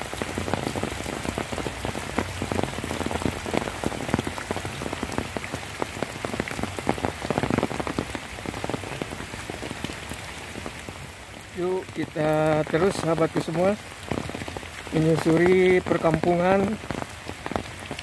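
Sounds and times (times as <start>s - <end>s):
heavy rain: 0.0s - 18.0s.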